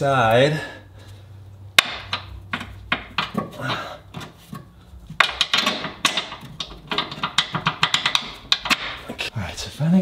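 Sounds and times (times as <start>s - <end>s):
hand tools and bolts clinking: 1.8s - 9.2s.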